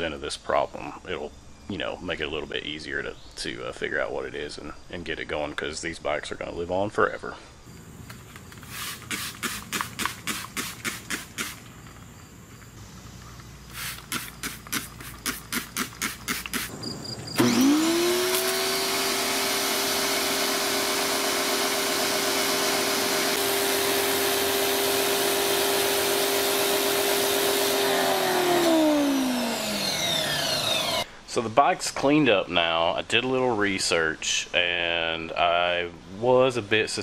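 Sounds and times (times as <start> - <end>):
spray bottle squirting: 8.2 - 12.0, 13.7 - 16.7
pressure washer running: 8.6 - 11.7, 13.7 - 16.7, 17.4 - 31.1.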